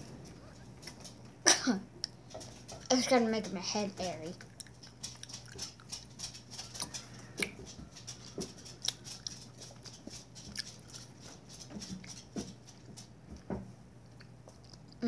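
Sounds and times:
faint low hum: 0.0 - 15.0
candy being chewed: 4.4 - 12.8, 14.0 - 15.0.

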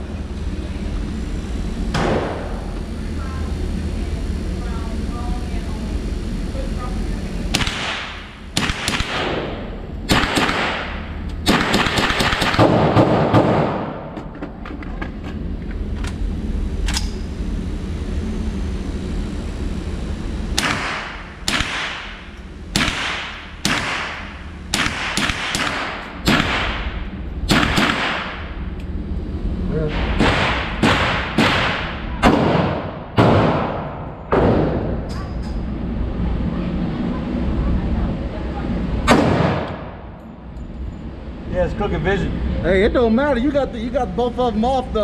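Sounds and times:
gunshots: 7.5 - 14.1, 20.6 - 22.2, 22.8 - 26.9, 27.5 - 28.4, 29.9 - 34.9, 39.1 - 39.9.

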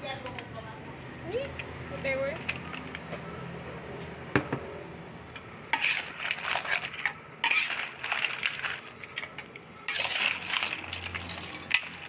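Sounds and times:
shells clattering in wok: 5.8 - 12.0.

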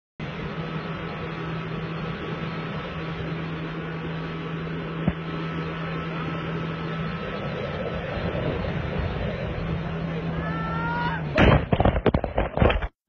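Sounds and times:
rushing noise: 0.2 - 12.5
motorboat engine running: 0.2 - 13.0.

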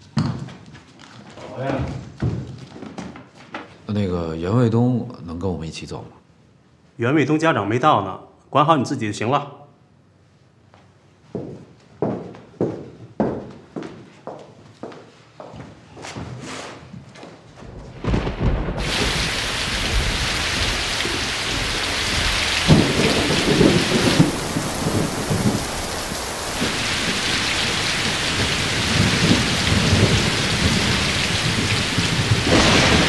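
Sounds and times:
rolling thunder: 17.9 - 33.0
heavy rain pouring: 18.0 - 33.0.

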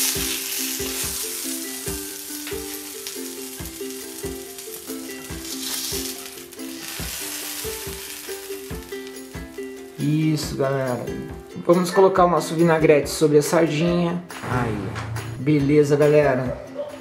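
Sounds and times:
fish sizzling on a griddle: 0.0 - 10.2
background music with beat: 0.0 - 17.0.

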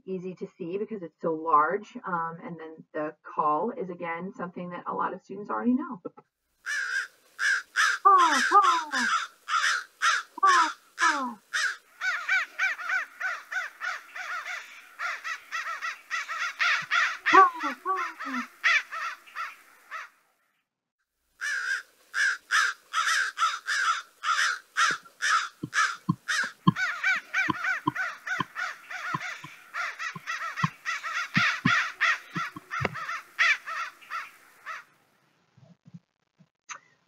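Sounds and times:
crows cawing: 6.6 - 20.2, 21.4 - 35.0.

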